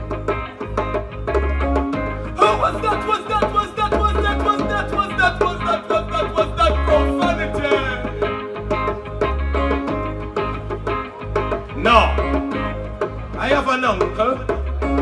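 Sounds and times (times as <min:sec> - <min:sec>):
live band music: 0:00.0 - 0:15.0
man singing into microphone: 0:02.4 - 0:08.4.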